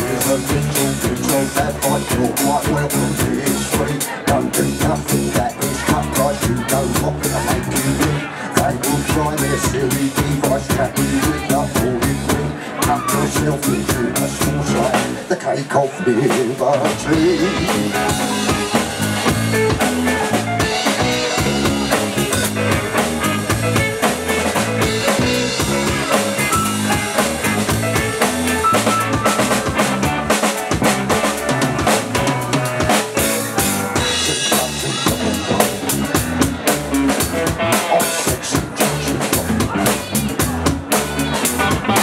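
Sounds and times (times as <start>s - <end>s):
drum kit: 0.0s - 15.3s, 16.2s - 42.0s
electric bass: 0.0s - 15.3s, 16.4s - 42.0s
electric guitar: 16.9s - 42.0s.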